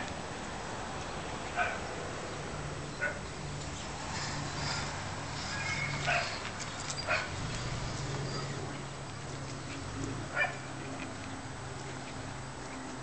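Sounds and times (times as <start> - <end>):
puppies yapping: 5.5 - 11.3.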